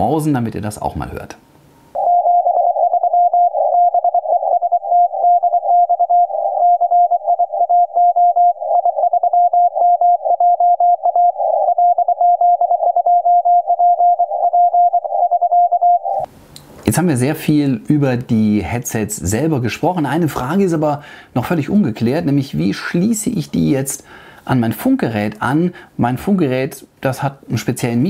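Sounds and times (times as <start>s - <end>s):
morse code beeps: 2.0s - 16.3s.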